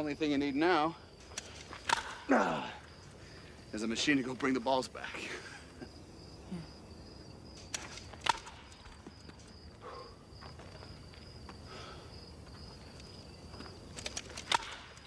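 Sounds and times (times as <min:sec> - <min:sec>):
crickets chirping: 0:00.0 - 0:15.0.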